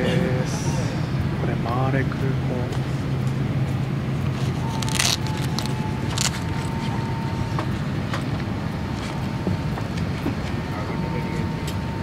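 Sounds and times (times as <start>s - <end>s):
airliner cabin hum: 0.0s - 12.0s
rustle of bags and clothing: 4.4s - 6.8s.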